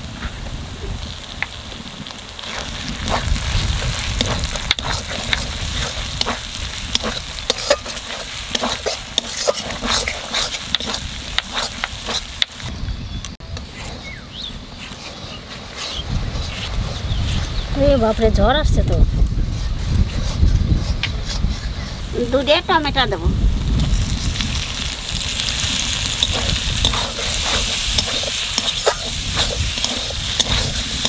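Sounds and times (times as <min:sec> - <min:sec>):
masala frying and sizzling: 0:00.0 - 0:31.0
spatula scraping and tapping pan: 0:02.5 - 0:12.6, 0:26.1 - 0:31.0.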